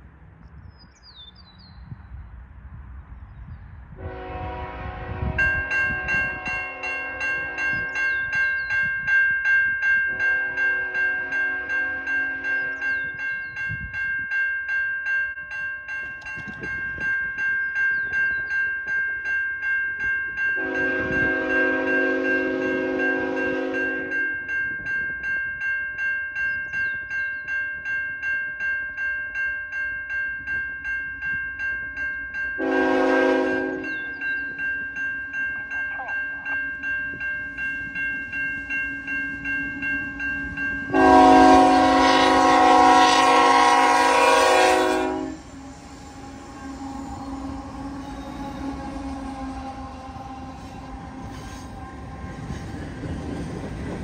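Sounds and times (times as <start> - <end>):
locomotive air horn blasts: 4.0 - 7.9, 10.1 - 12.9, 20.6 - 24.3, 32.6 - 34.1, 40.9 - 52.6
crossing signal bells ringing: 5.4 - 54.0.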